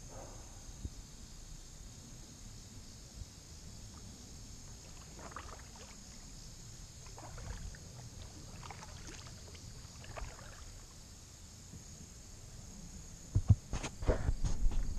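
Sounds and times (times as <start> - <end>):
insect drone: 0.0 - 14.9
paddle splashing in water: 3.9 - 11.0.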